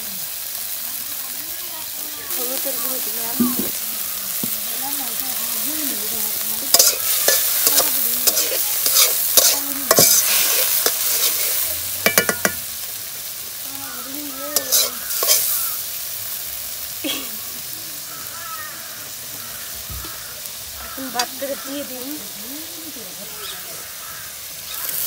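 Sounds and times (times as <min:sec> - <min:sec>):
vegetables sizzling in a wok: 0:00.0 - 0:25.0
metal spatula scraping a wok: 0:06.4 - 0:12.7, 0:14.5 - 0:15.9.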